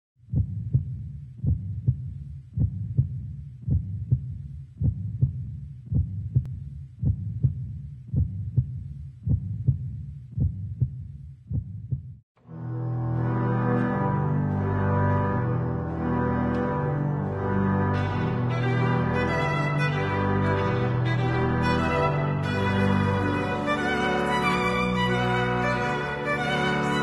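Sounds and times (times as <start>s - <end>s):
heartbeat thumps: 0.2s - 12.2s.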